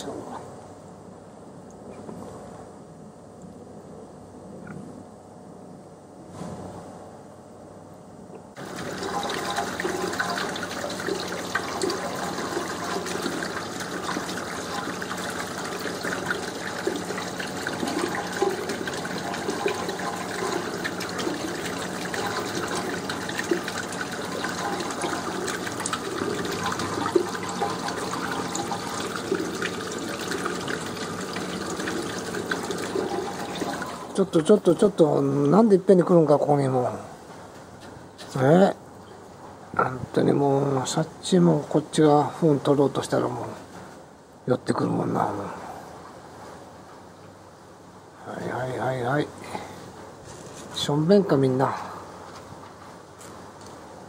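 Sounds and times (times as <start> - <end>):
water running and splashing: 8.6 - 34.2.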